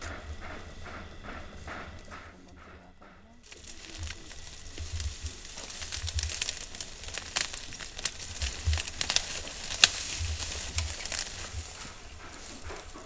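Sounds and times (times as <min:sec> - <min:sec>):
elephant feeding on brush: 0:03.4 - 0:13.0
twigs snapping: 0:03.4 - 0:13.0.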